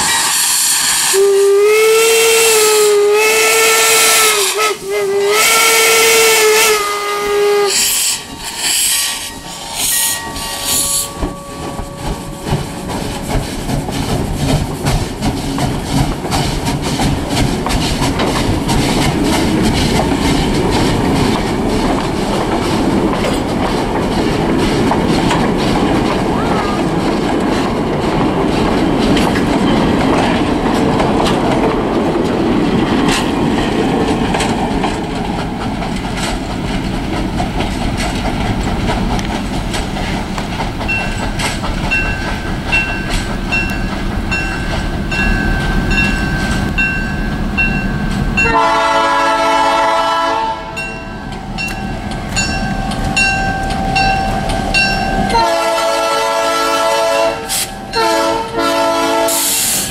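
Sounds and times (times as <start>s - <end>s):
steam whistle blasts: 0.0s - 13.3s, 48.4s - 50.8s, 54.0s - 59.9s
train cars rumbling on rails: 0.0s - 59.9s
bell ringing: 7.8s - 13.5s, 41.9s - 48.6s, 50.8s - 55.4s.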